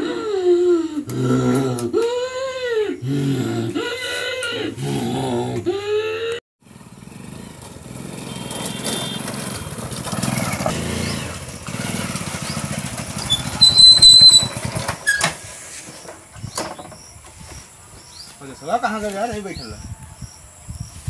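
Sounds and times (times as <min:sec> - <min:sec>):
motorcycle engine running: 0:06.6 - 0:15.2.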